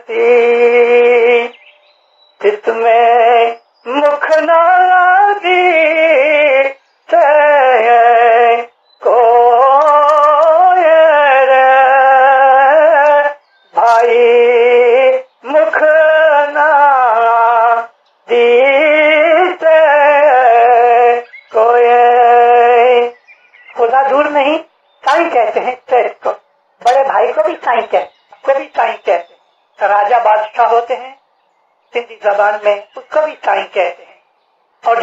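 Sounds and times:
person singing devotional song: 0.0s - 35.0s.

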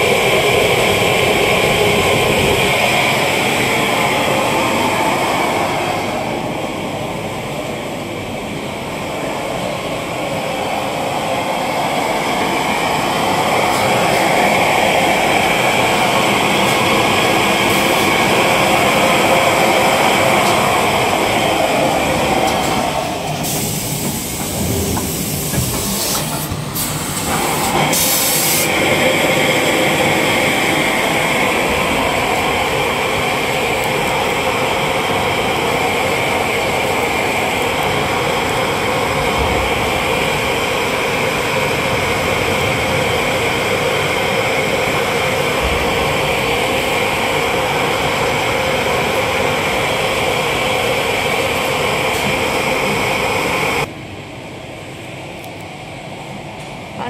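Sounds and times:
packing machinery running: 13.6s - 53.9s.

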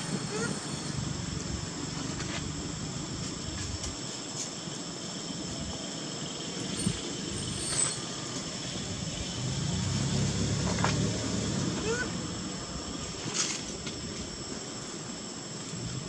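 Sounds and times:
insects droning: 0.0s - 16.0s.

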